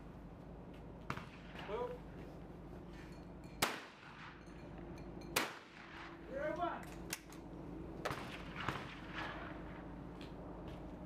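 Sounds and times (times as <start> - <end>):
shotgun shots: 1.1 - 2.0, 3.6 - 4.4, 5.4 - 6.2, 8.0 - 9.9.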